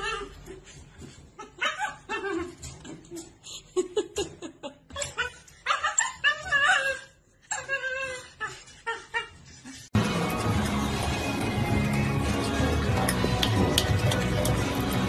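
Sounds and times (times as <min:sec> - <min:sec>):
dog whining and yipping: 0:00.0 - 0:00.6, 0:01.3 - 0:03.0, 0:04.9 - 0:09.7
music: 0:10.0 - 0:15.0.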